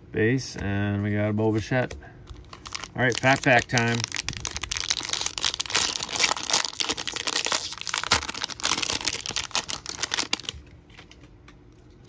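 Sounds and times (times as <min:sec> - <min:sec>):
wrapper tearing and crinkling: 0:02.3 - 0:10.6.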